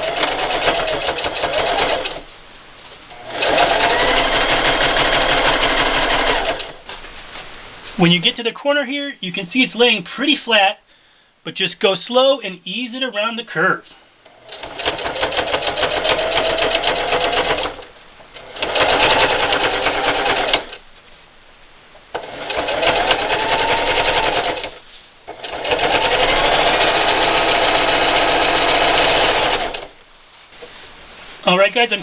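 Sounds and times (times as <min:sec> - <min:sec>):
sewing machine stitching: 0:00.0 - 0:02.2, 0:03.1 - 0:06.8, 0:14.3 - 0:20.8, 0:22.2 - 0:30.0.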